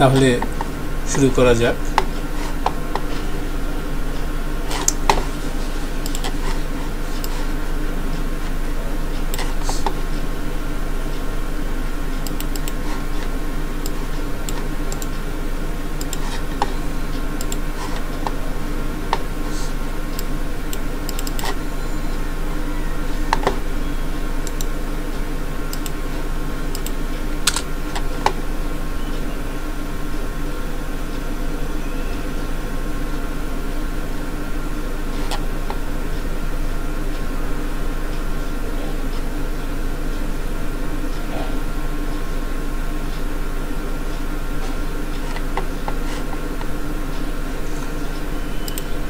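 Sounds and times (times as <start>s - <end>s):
low electrical hum: 0.0s - 49.0s
computer keyboard typing: 6.0s - 7.4s, 12.2s - 15.1s, 16.0s - 18.4s, 20.2s - 21.6s, 26.7s - 28.4s.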